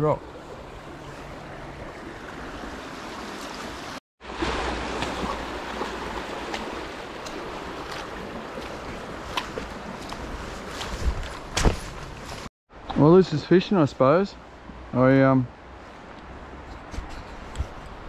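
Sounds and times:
river water flowing over rocks: 0.2 - 10.6
footsteps on log and sand: 4.8 - 12.5.

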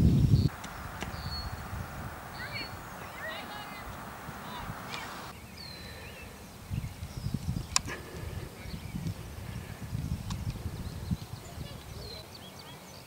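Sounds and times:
faint bird chirps: 0.4 - 7.4
low rumbling: 0.5 - 5.3.

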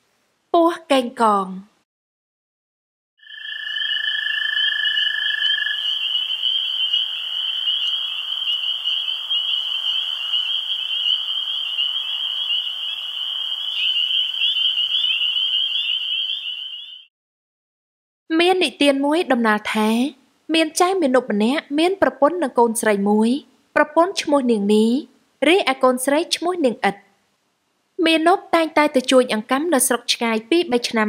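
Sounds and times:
chirring chorus of night insects: 3.2 - 17.1.

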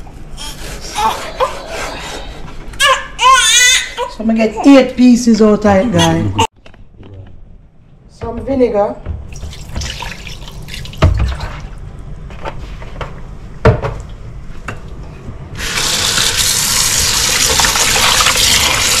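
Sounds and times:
tap water running into bowl: 9.3 - 11.7, 15.6 - 19.0
vinegar pouring into bowl: 9.4 - 11.6, 15.6 - 19.0.

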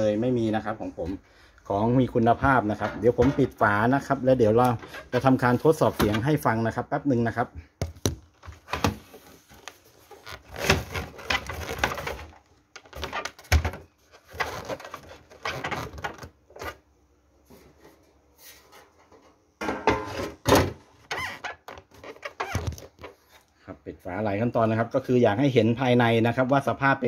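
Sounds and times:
metal panels clattering and scraping: 2.5 - 3.8.

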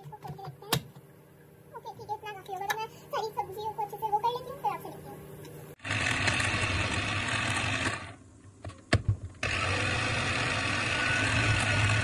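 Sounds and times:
electric food chopper running: 5.8 - 8.2, 9.4 - 12.0.

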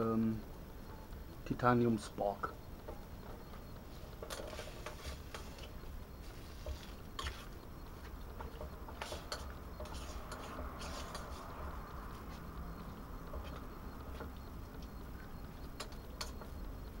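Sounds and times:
faint steady hiss: 0.0 - 17.0
spork scraping metal cookpot: 8.5 - 11.6.

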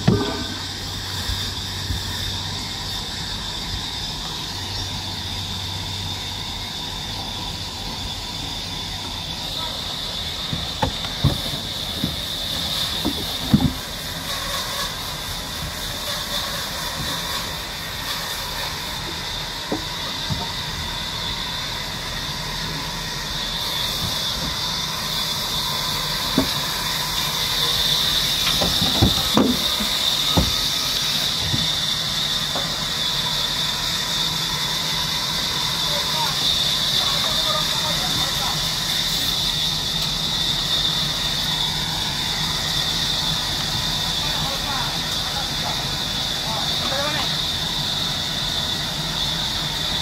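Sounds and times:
winch whining: 0.0 - 50.0
wooden knocks of logs: 0.1 - 0.6, 13.0 - 13.8, 28.5 - 30.6.

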